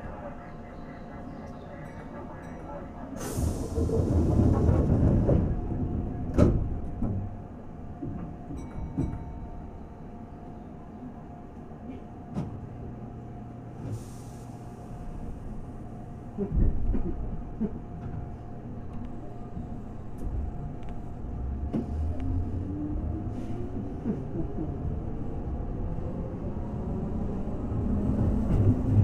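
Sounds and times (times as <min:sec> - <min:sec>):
train equipment hum: 0:00.0 - 0:29.0
train running noise: 0:00.0 - 0:29.0
train jolt: 0:03.2 - 0:09.4.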